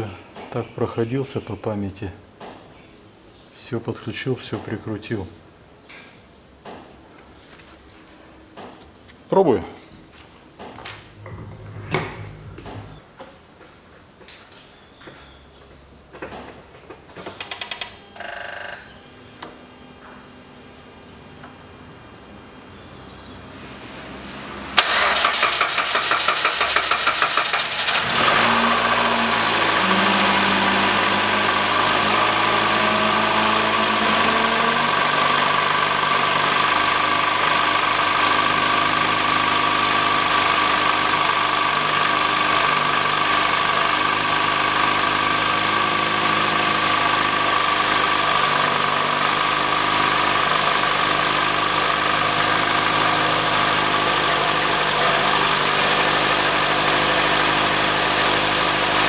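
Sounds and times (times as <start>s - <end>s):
car engine cranking and idling: 11.1s - 13.0s, 24.8s - 59.0s
steady whine: 11.1s - 13.1s.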